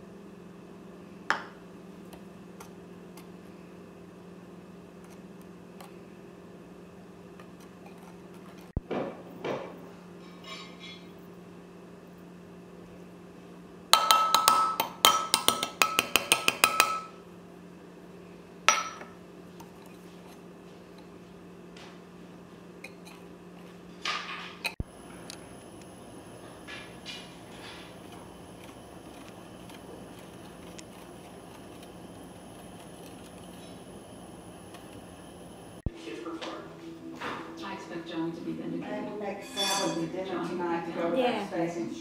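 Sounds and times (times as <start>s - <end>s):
utensils clinking on glass bowl: 10.2s - 11.1s, 39.4s - 40.2s.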